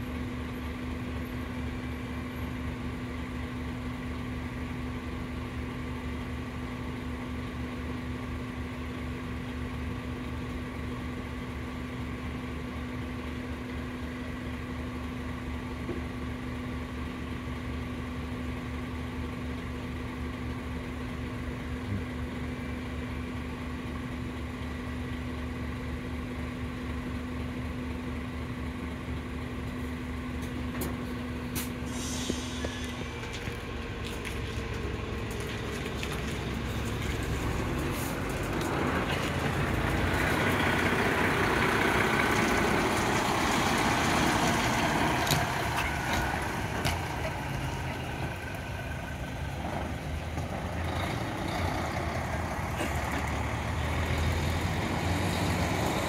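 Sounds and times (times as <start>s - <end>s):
diesel engine idling: 0.0s - 56.0s
coach engine revving pulling away: 31.5s - 56.0s
air hiss: 31.6s - 33.0s.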